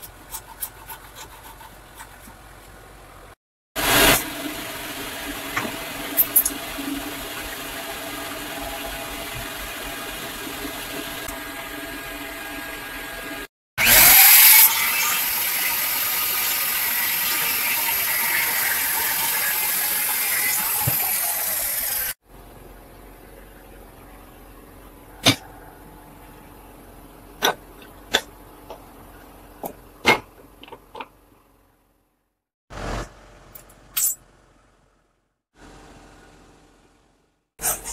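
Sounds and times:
electric jigsaw cutting wood: 0:13.8 - 0:18.1.

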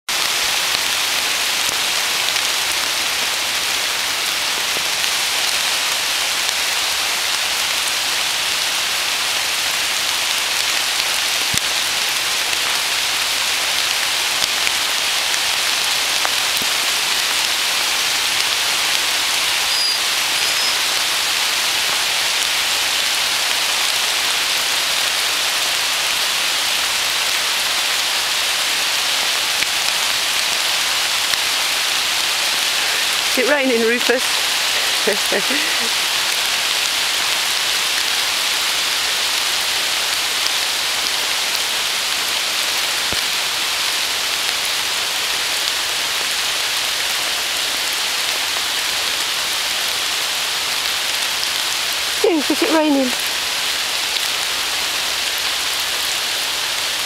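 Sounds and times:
rain on leaves: 0:00.0 - 0:57.0.

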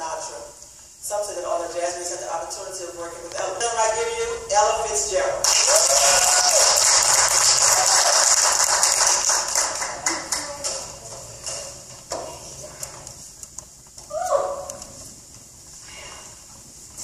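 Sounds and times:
audience applauding: 0:05.4 - 0:10.9.

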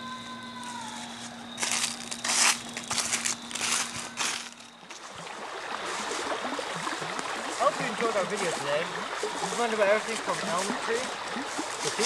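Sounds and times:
dry leaves crunching underfoot: 0:00.6 - 0:05.1, 0:08.3 - 0:12.0.

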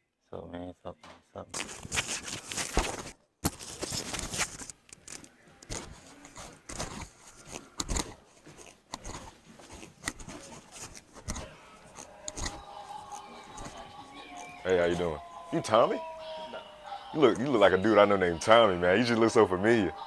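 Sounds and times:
recording device handling noise: 0:01.5 - 0:15.4.

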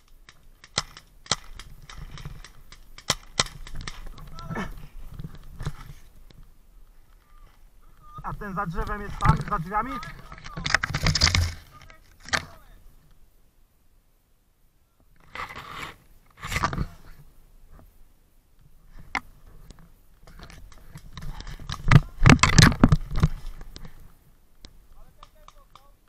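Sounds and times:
crunching and rustling: 0:00.0 - 0:12.8, 0:18.9 - 0:26.0.

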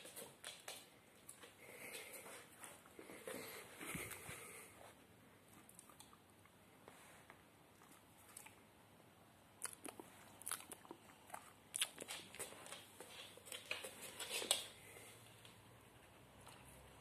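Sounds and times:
claws clicking on wooden floor: 0:11.8 - 0:14.8.

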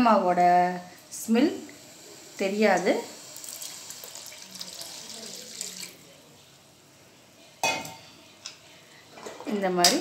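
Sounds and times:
water pouring into a pan: 0:03.2 - 0:06.0.

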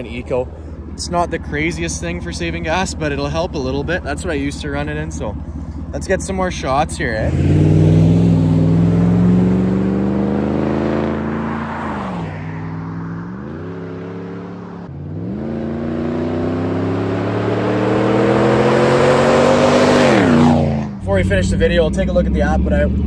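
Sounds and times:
pickup truck accelerating: 0:00.0 - 0:23.0.

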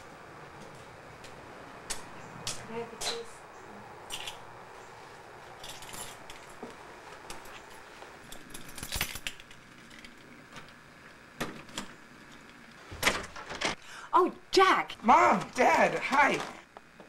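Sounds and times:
keys jangling: 0:05.6 - 0:06.6, 0:07.3 - 0:10.2.

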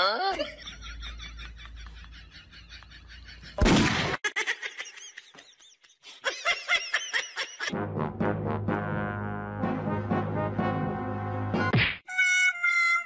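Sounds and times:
laugh-like sounds: 0:00.0 - 0:07.8
brass-led music: 0:07.7 - 0:12.4.

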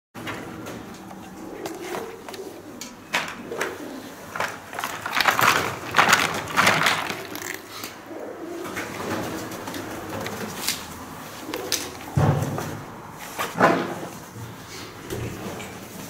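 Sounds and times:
pigeons cooing: 0:00.4 - 0:13.1
footsteps on loose debris: 0:04.4 - 0:07.6.

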